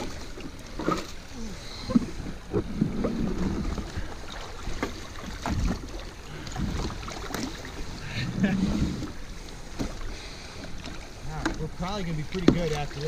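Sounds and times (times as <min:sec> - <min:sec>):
water rushing: 0:00.0 - 0:13.0
wind on microphone: 0:07.9 - 0:09.2.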